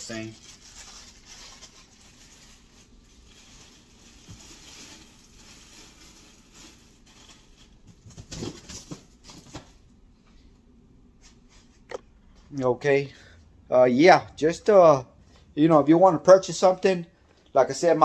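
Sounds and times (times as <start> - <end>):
rustling and shuffling handling noises: 0.0 - 13.6.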